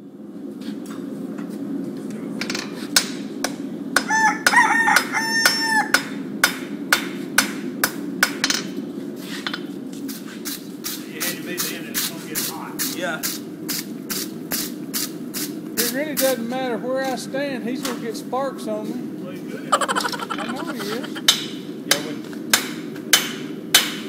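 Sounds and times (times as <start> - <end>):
rooster crowing: 4.0 - 6.1, 19.7 - 21.2
hammer striking iron on anvil: 5.9 - 8.7, 21.2 - 24.0.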